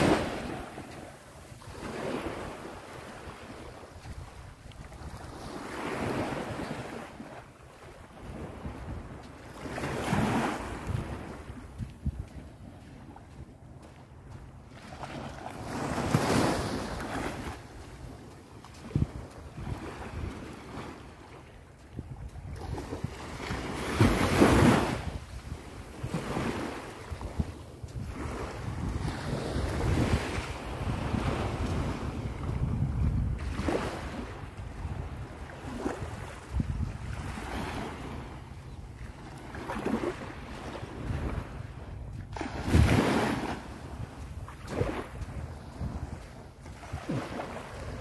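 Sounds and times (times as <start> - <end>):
waves washing up a beach: 0.0 - 48.0
wind rumble on microphone: 0.0 - 48.0.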